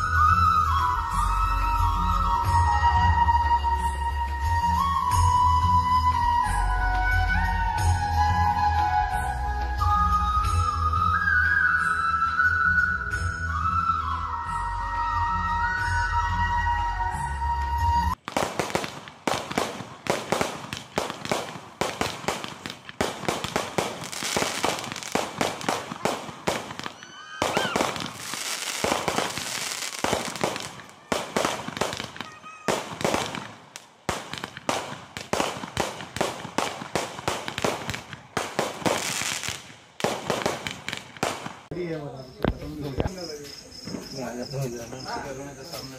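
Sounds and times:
background music: 0.0s - 18.2s
rising firework whistle: 0.0s - 41.4s
fireworks cracking and banging: 18.1s - 44.3s.

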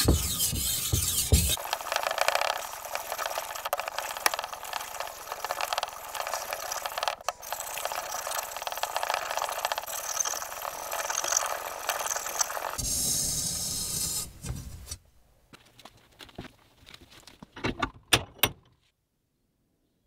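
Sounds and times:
blade scraping on whetstone: 0.0s - 4.5s.

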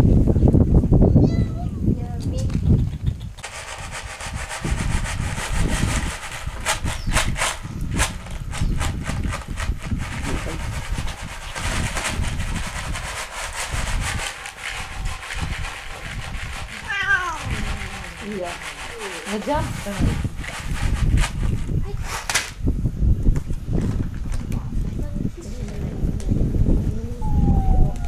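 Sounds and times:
low rustling rumble: 1.8s - 22.0s
dry cat food rattling in box: 3.3s - 22.5s
cat meowing: 16.8s - 18.0s, 27.0s - 28.0s.

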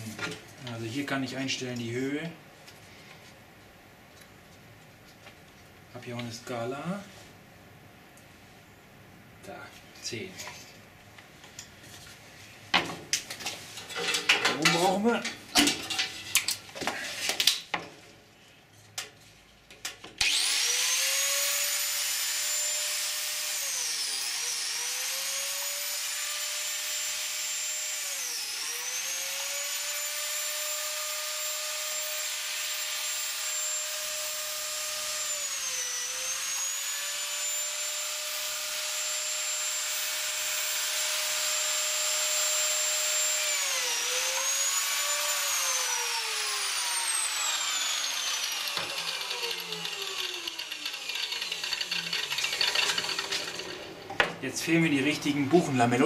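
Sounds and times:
biscuit joiner motor whining: 20.2s - 54.1s.

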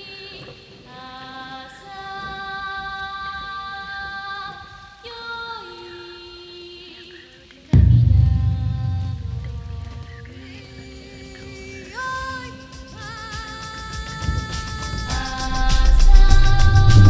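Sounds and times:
slow music with wordless voices: 0.0s - 17.0s
loud deep boom: 7.8s - 10.6s, 15.3s - 17.0s.

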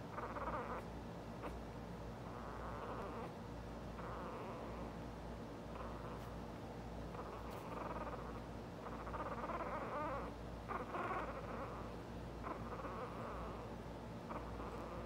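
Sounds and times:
low steady hum: 0.0s - 15.0s
puppies whimpering: 2.3s - 3.3s, 4.0s - 4.9s, 7.2s - 15.0s.

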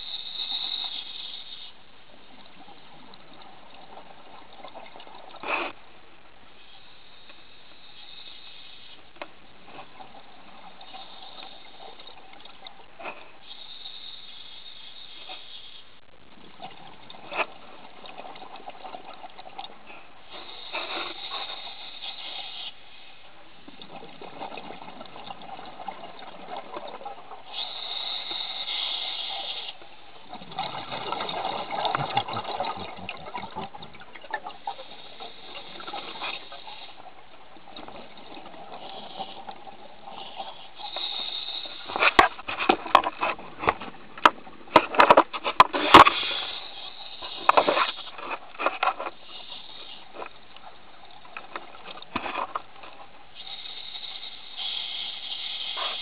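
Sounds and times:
scuba regulator hissing inhalations: 20.3s - 23.2s, 27.5s - 29.8s, 38.7s - 42.4s, 46.0s - 48.2s, 49.1s - 50.5s, 53.3s - 56.0s
burbling exhaled bubbles: 30.2s - 34.6s.

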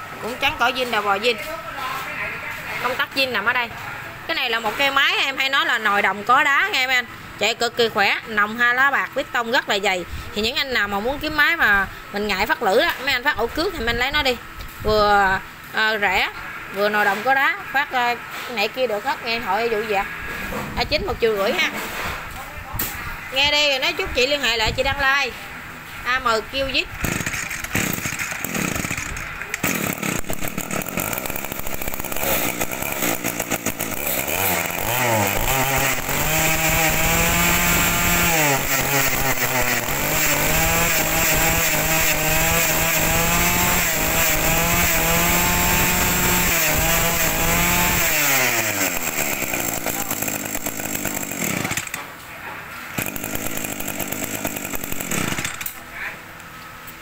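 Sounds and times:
brush cutter engine revving: 27.0s - 52.0s, 53.0s - 55.8s.

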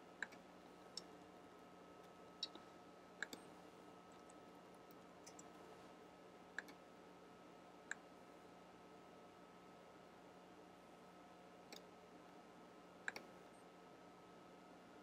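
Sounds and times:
faint steady hum: 0.0s - 15.0s
computer mouse clicks: 2.4s - 2.6s, 3.2s - 3.5s, 4.2s - 5.6s, 6.6s - 6.8s, 11.7s - 11.9s, 13.0s - 13.3s.

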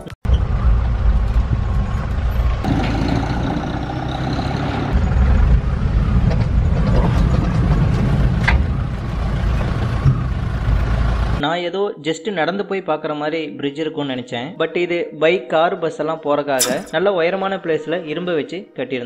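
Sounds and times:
vehicle engine and road rumble: 0.0s - 11.4s.

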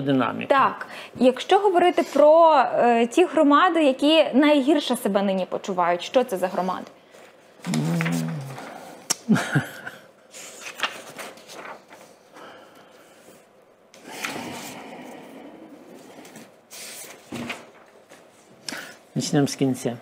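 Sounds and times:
paper sheets rustling: 10.3s - 12.5s, 16.1s - 18.5s.

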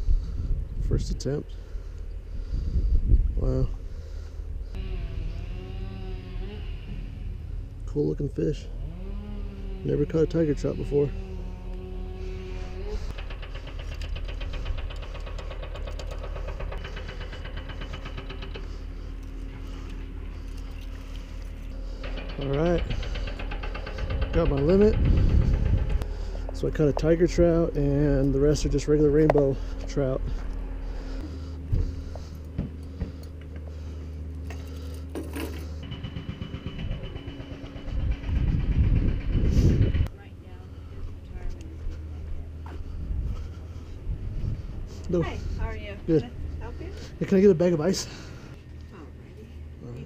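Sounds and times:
wind rumble on microphone: 0.0s - 7.7s, 22.4s - 29.5s, 36.7s - 40.1s, 41.0s - 46.8s
vehicle engine humming: 0.0s - 50.0s.

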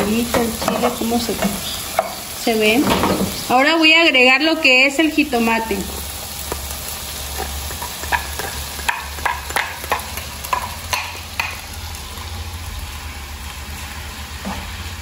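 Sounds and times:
vegetables sizzling in oil: 0.0s - 15.0s
spatula clacking and scraping: 6.5s - 11.6s.

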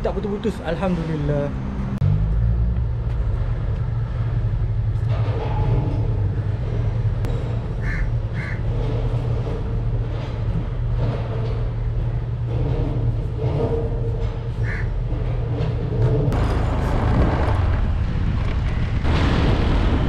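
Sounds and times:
low rumble of engines: 0.0s - 20.0s
crow cawing: 7.8s - 8.6s, 14.6s - 14.9s.

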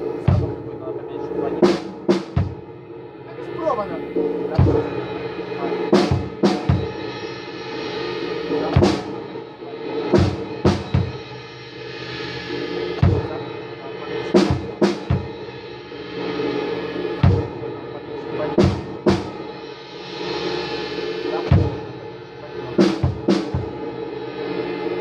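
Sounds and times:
deep bass drum beats: 0.0s - 2.7s, 10.1s - 11.3s, 13.0s - 13.5s, 21.4s - 22.0s, 22.6s - 23.8s
sustained music backing: 0.0s - 25.0s
sharp drum hits: 10.1s - 11.2s.

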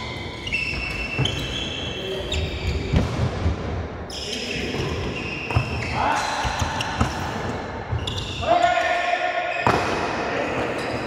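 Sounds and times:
shoes squeaking on floor: 0.0s - 3.1s, 4.1s - 7.3s, 7.9s - 8.5s.

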